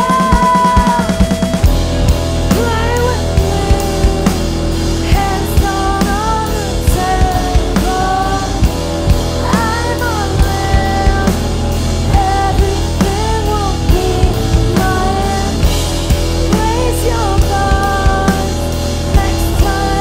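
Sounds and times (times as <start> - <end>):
woman singing: 0.0 - 1.7, 2.5 - 20.0
drum kit beat: 0.0 - 20.0
electric guitar: 0.0 - 20.0
keyboard: 0.0 - 20.0.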